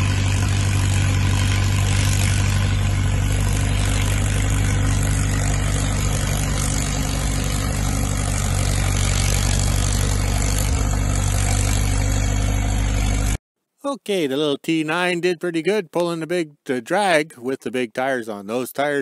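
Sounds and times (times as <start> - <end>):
crawler dozer engine idling: 0.0 - 13.4.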